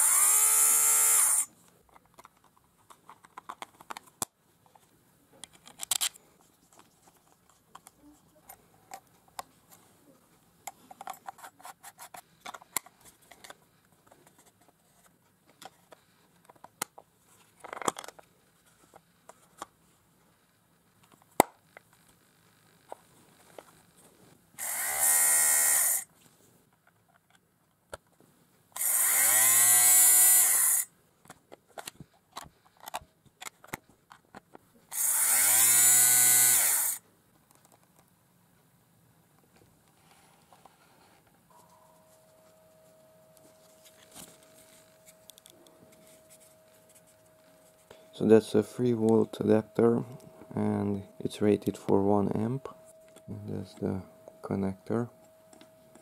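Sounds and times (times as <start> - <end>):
fabric shaver motor whirring: 0.0 - 1.5, 24.6 - 26.0, 28.8 - 30.9, 34.9 - 37.0.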